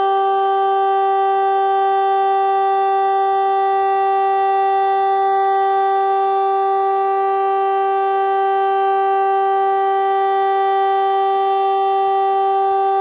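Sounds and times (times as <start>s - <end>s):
siren steady tone: 0.0s - 13.0s.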